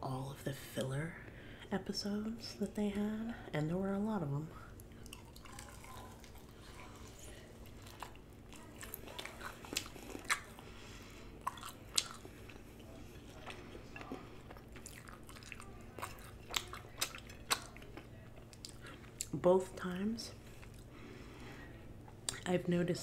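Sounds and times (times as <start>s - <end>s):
biting and chewing: 4.8s - 19.3s.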